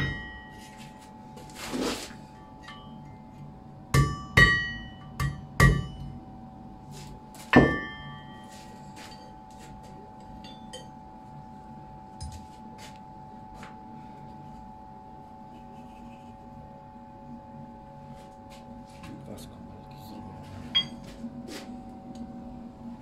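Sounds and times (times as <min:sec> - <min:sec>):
hammer striking anvil: 0:00.0 - 0:00.6, 0:03.9 - 0:06.2, 0:07.5 - 0:08.3, 0:20.8 - 0:21.0
steady hum: 0:00.0 - 0:23.0.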